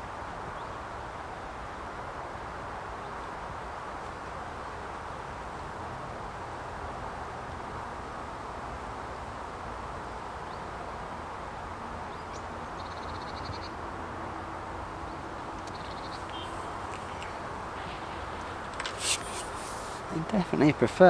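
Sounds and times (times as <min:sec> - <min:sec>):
low rush of outdoor noise: 0:00.0 - 0:21.0
high bird chirps: 0:15.6 - 0:19.2
bird chattering call: 0:15.6 - 0:19.6.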